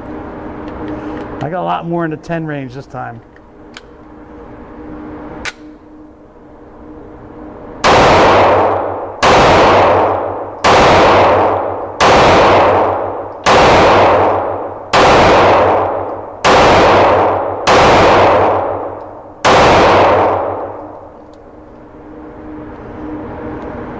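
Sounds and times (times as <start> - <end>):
pistol shots echoing indoors: 7.8 - 21.3.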